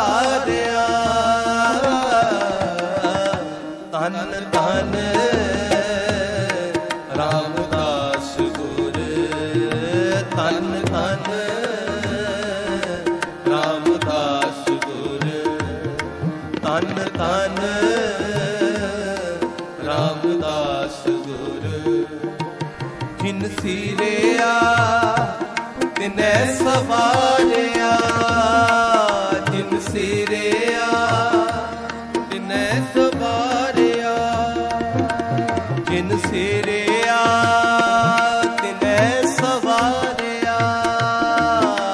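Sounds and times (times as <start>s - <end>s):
tabla strokes: 0.0s - 41.9s.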